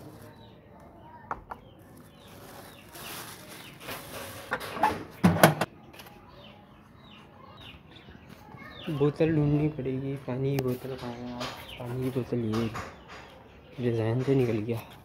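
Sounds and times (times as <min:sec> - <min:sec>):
rustling and scraping: 0:01.8 - 0:06.2, 0:10.6 - 0:13.5.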